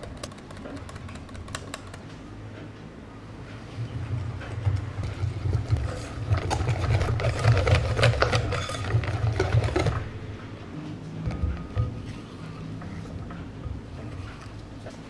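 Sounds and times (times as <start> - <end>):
whisk beating batter in glass bowl: 5.2 - 10.0.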